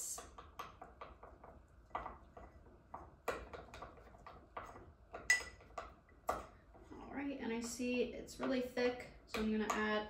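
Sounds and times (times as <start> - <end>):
utensil stirring in a jar: 0.0 - 7.0.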